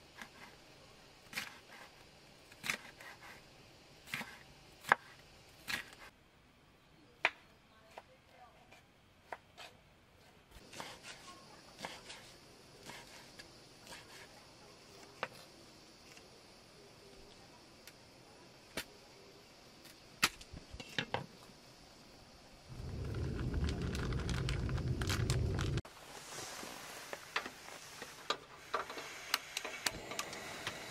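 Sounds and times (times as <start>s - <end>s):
loud low rumbling noise: 22.7s - 25.8s.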